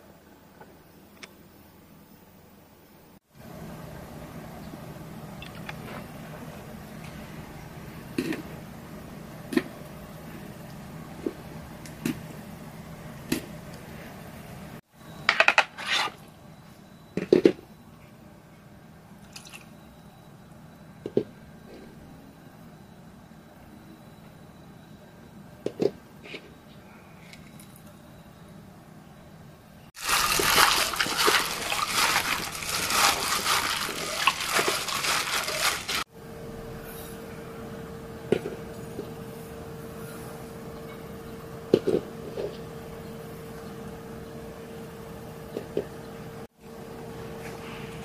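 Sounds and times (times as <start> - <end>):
wet squelching of raw chicken: 30.0 - 36.0
plastic glove crinkling: 30.0 - 36.1.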